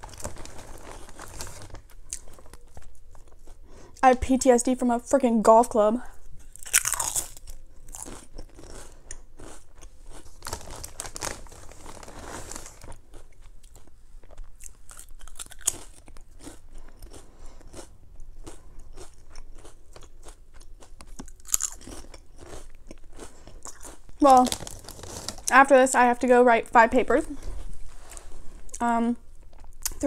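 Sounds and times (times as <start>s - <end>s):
potato chips crunching: 0.0s - 3.6s, 6.4s - 25.7s.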